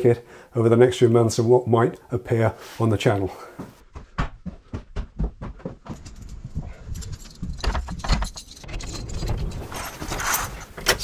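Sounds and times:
keys jangling: 0:05.9 - 0:10.8
door opening: 0:06.9 - 0:11.0.

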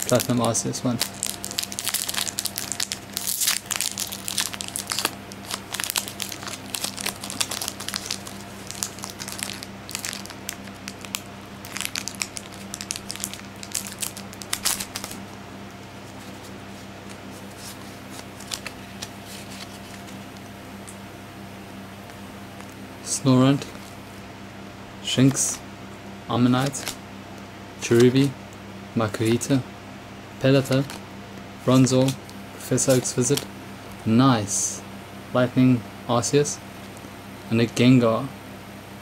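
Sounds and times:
foil wrapper crinkling and tearing: 0:00.0 - 0:15.2, 0:17.5 - 0:20.2, 0:26.6 - 0:27.0.

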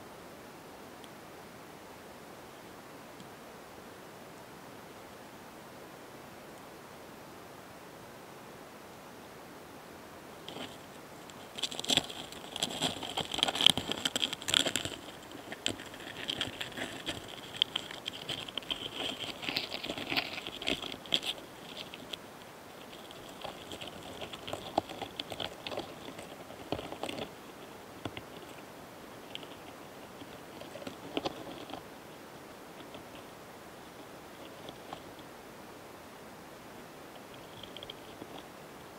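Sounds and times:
beetles clicking and rasping: 0:10.4 - 0:35.4, 0:37.1 - 0:38.6.

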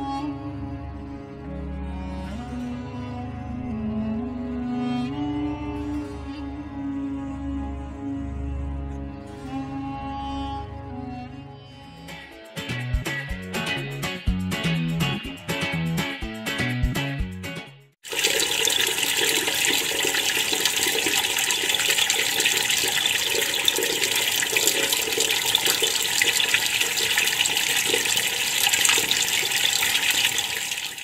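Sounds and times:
strummed guitar music: 0:12.0 - 0:17.8
hands washing: 0:18.0 - 0:31.0
tap running: 0:18.1 - 0:31.0.

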